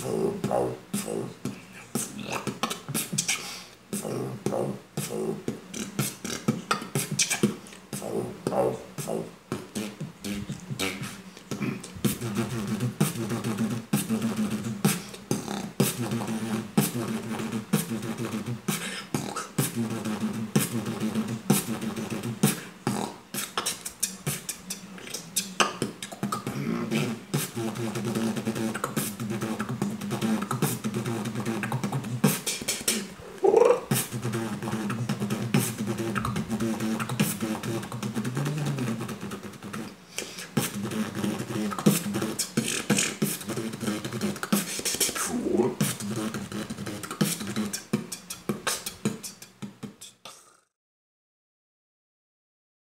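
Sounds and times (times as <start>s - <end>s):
rising vocal sweep: 0.0s - 39.9s, 40.6s - 47.9s
person beatboxing: 0.0s - 50.7s
hummed bass line: 8.0s - 18.7s, 19.6s - 22.5s, 26.4s - 32.3s, 33.8s - 39.8s, 40.6s - 42.4s.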